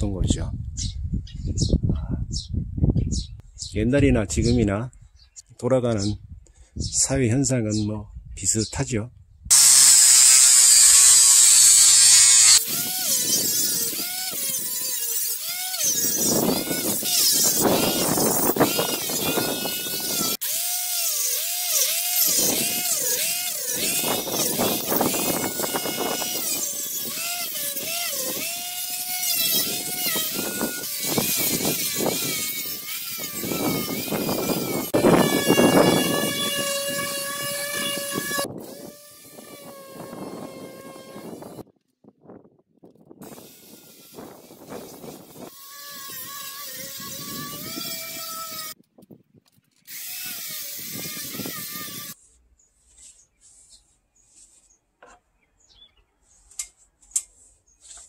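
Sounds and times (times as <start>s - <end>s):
disc sander grinding wood: 9.5s - 41.6s, 43.2s - 48.8s, 49.9s - 52.2s.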